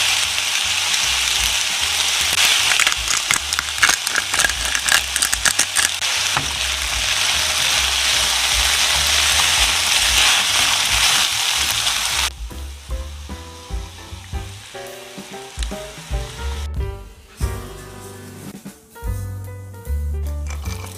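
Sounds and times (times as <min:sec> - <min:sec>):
food sizzling in a frying pan: 0:00.0 - 0:16.6
background music with a beat: 0:04.6 - 0:20.9.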